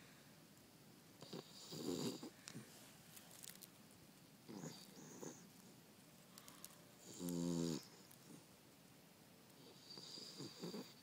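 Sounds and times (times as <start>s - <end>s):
dog snoring: 1.2s - 2.4s, 4.5s - 5.4s, 7.0s - 8.4s, 9.6s - 11.0s.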